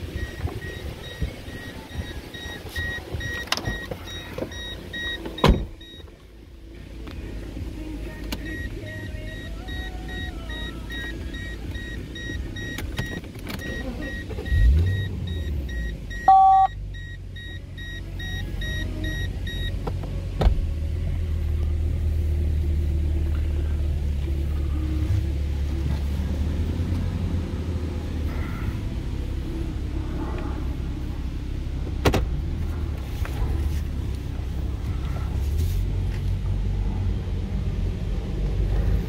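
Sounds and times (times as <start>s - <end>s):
high electronic beeping: 0.0s - 6.0s, 13.6s - 19.7s
car engine idling and revving: 0.0s - 39.0s.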